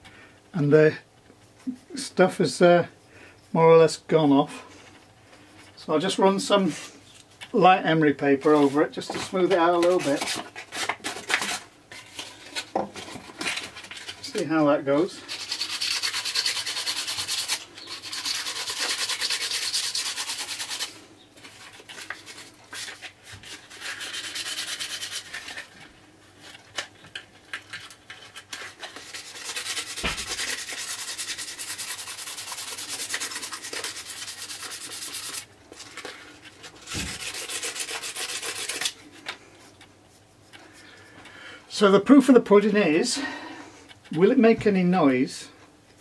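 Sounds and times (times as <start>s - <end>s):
sandpaper rubbing: 15.2s - 25.7s, 28.1s - 36.0s, 36.6s - 39.0s.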